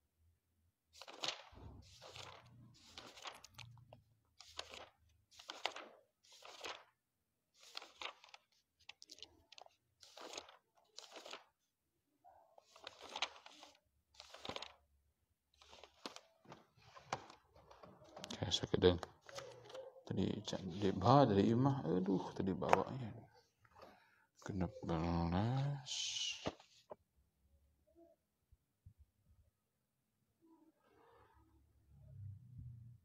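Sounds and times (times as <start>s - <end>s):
book pages rustling: 1.0s - 11.6s, 12.6s - 14.9s, 15.6s - 21.2s, 22.0s - 24.1s, 26.4s - 27.0s.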